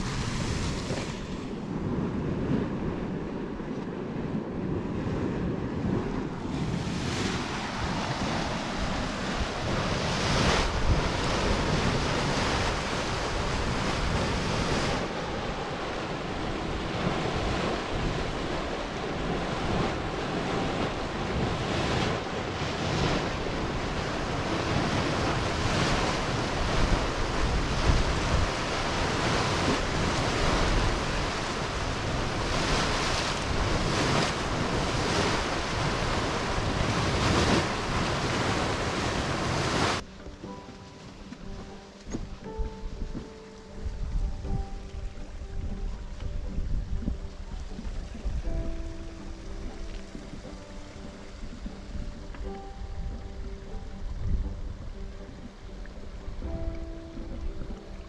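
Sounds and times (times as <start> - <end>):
wind on microphone: 0.0 - 58.0
hot spring water churning: 6.6 - 40.0.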